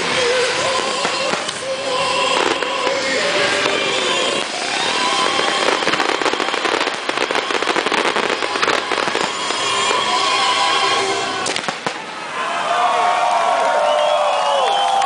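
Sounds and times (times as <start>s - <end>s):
firework crackling and popping: 0.0s - 12.1s.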